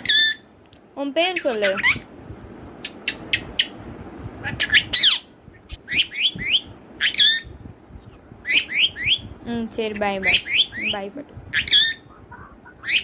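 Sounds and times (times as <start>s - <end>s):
parakeet chirps and squawks: 0.0s - 0.5s, 1.3s - 2.1s, 4.4s - 7.5s, 8.5s - 9.2s, 10.1s - 13.0s.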